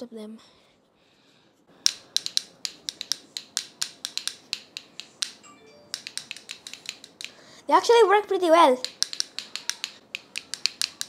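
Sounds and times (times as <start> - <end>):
bottle cap castanets clacking: 1.8 - 7.4, 8.8 - 11.0.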